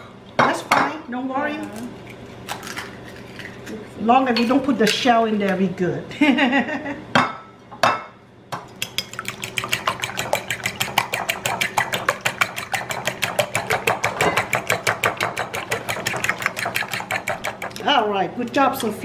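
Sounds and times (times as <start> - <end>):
fork beating eggs in bowl: 8.6 - 19.0.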